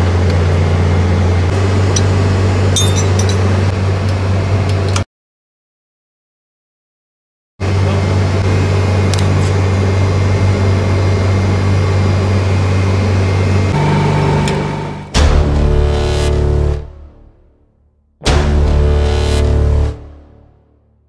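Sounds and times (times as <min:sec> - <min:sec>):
refrigeration unit humming: 0:07.6 - 0:16.4
steady high tone: 0:13.7 - 0:16.7.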